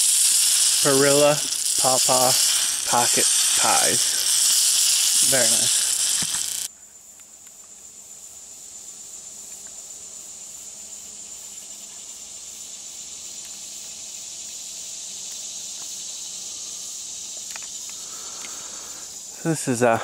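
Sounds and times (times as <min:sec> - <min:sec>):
high-pitched insect drone: 0:00.0 - 0:20.0.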